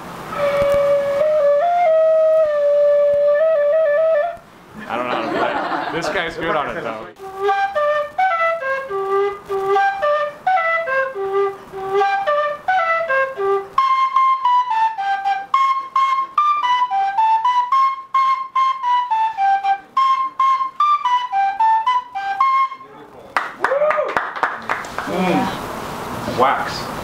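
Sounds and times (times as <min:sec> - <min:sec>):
end-blown flute melody: 0:00.2 - 0:04.4, 0:07.2 - 0:24.1.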